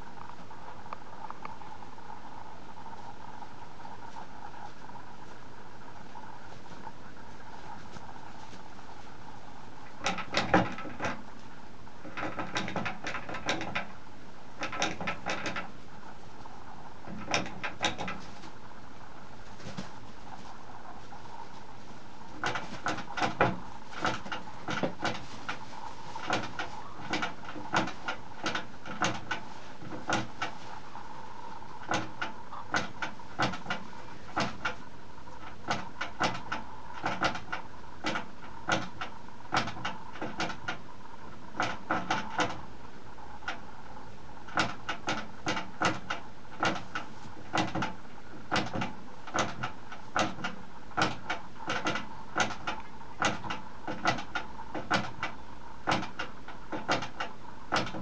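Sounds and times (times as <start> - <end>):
guinea pigs chutting: 0.0 - 58.0.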